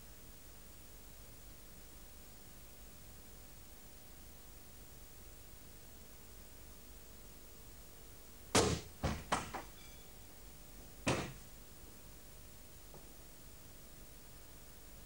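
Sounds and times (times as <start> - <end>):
sharp bangs: 8.6 - 9.8.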